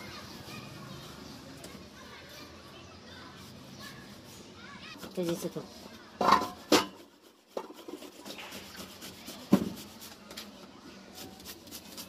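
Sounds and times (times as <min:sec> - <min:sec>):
knife slicing onion: 0:06.4 - 0:12.0.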